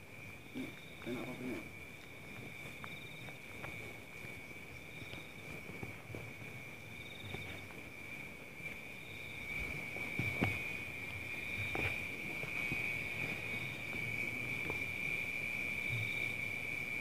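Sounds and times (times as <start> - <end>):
high pulsing insect chirp: 0.0 - 17.0
insects trilling: 0.0 - 17.0
soft knocks in undergrowth: 9.6 - 10.8.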